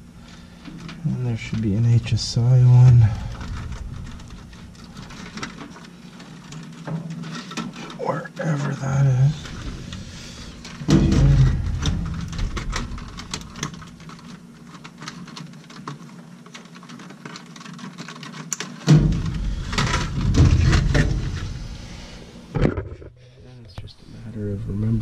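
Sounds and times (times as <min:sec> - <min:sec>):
rubbing and bumps near microphone: 0:22.6 - 0:23.2.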